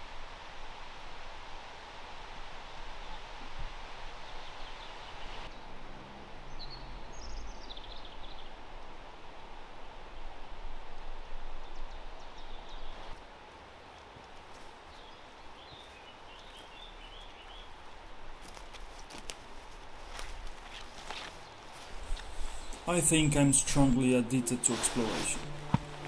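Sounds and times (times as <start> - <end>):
bird chirping: 6.4 - 8.6
river rushing: 21.9 - 26.0.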